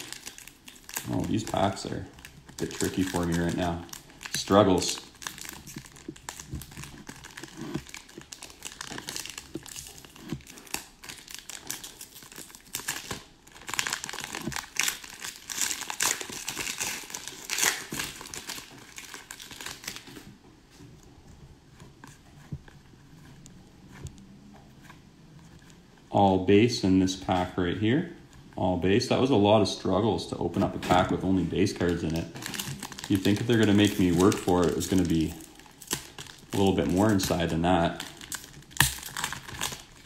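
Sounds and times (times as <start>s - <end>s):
foil wrapper crinkling and tearing: 0.0s - 20.3s, 30.6s - 40.0s.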